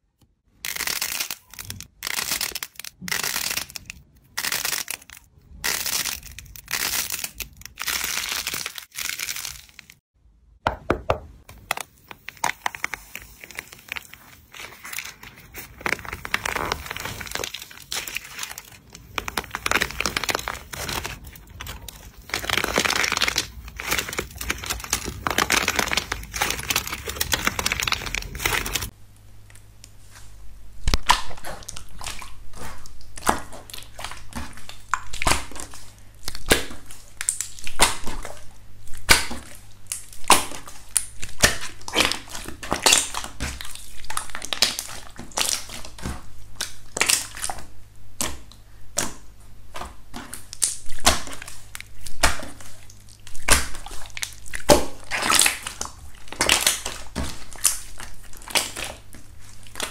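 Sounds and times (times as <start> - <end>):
slime crust crunching: 0.6 - 10.0, 11.4 - 28.9, 50.1 - 59.9.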